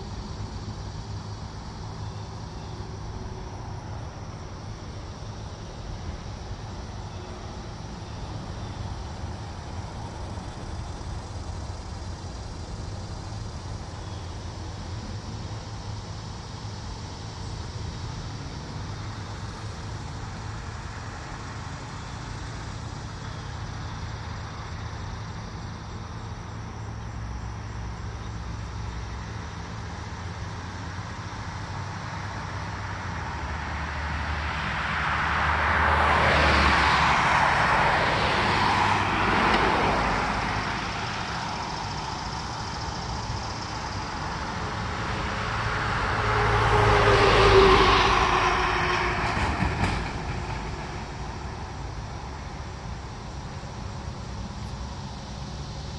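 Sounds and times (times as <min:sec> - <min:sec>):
box truck approaching: 0:00.0 - 0:55.9
road traffic passing: 0:00.0 - 0:55.9
vehicle passing loudly: 0:33.6 - 0:53.4.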